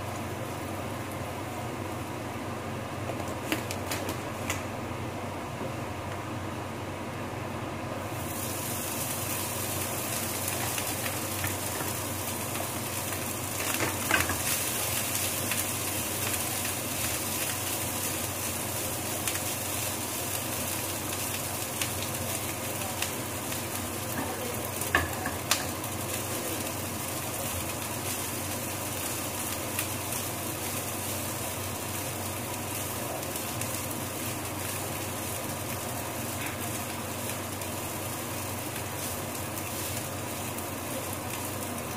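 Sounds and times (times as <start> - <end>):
rice sizzling in a hot pan: 0.0 - 5.6, 6.6 - 41.9.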